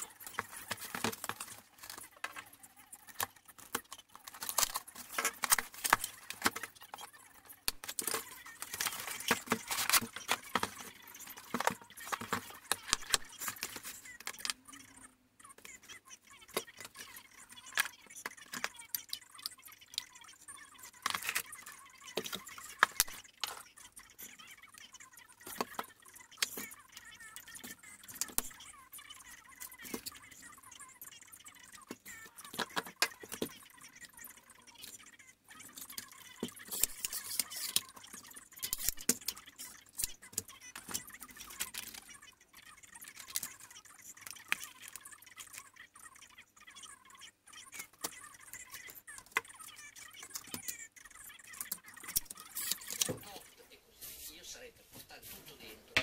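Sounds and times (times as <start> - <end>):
plastic case being handled: 0.0 - 14.6.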